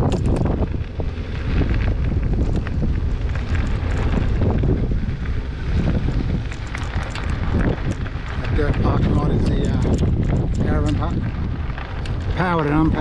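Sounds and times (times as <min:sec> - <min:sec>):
bicycle rolling over gravel: 0:00.0 - 0:13.0
tyres crackling on stones: 0:00.0 - 0:13.0
wind buffeting microphone: 0:00.0 - 0:13.0.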